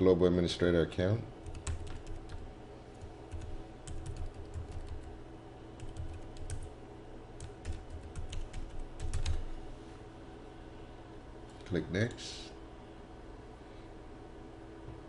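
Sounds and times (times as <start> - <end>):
computer keyboard typing: 1.4 - 5.1, 5.8 - 6.7, 7.4 - 9.5.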